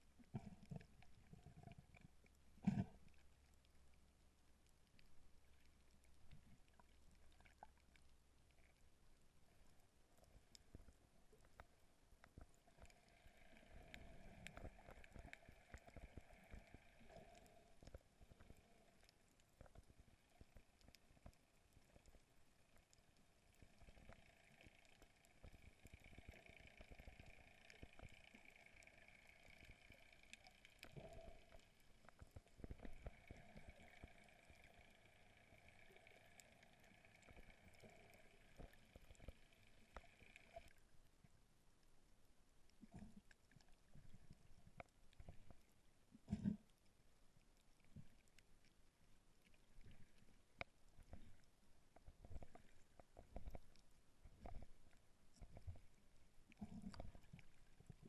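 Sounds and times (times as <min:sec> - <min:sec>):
faint steady hum: 0:00.0 - 0:58.0
underwater crackling clicks: 0:10.2 - 0:40.9, 0:49.4 - 0:58.0.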